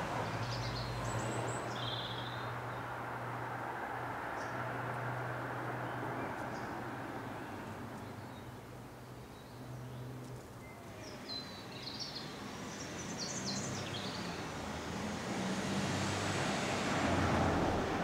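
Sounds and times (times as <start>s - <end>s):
steady outdoor rumble: 12.7s - 18.0s.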